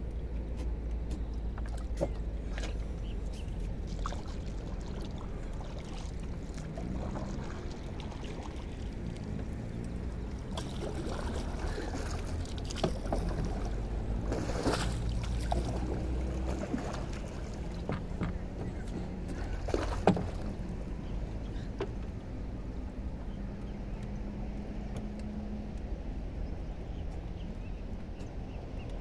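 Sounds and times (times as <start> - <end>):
paddle swishing water: 0.6 - 22.0
light knocks on canoe: 17.8 - 19.0, 19.7 - 20.5.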